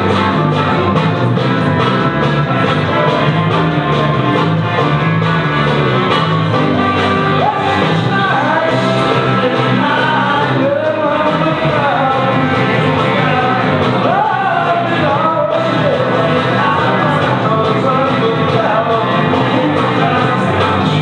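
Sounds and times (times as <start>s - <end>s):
rock and roll song: 0.0s - 21.0s
person singing: 6.5s - 21.0s.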